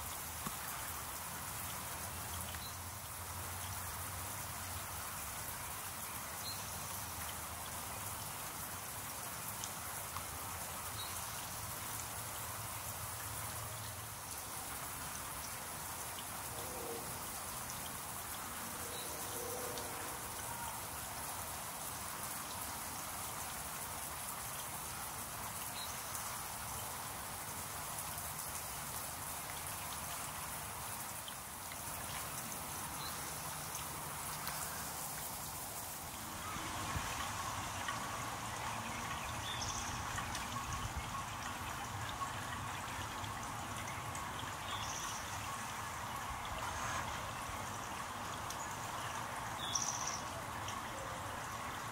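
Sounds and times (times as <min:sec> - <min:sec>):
fountain water splashing: 0:00.0 - 0:51.9.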